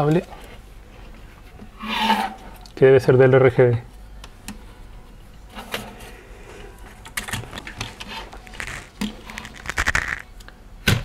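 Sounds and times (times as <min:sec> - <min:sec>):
plastic clicks and rustles: 0:07.0 - 0:10.5.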